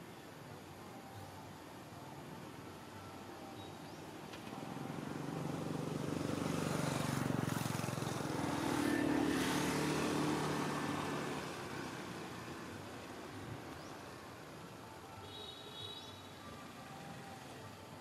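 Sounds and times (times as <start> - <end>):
motor vehicle driving past: 4.7 - 12.6.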